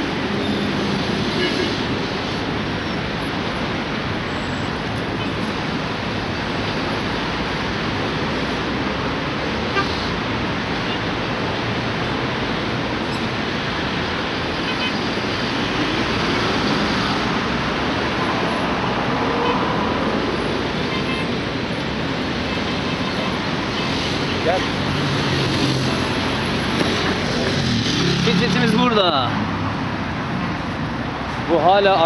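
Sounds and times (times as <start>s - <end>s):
busy road traffic: 0.0s - 32.0s.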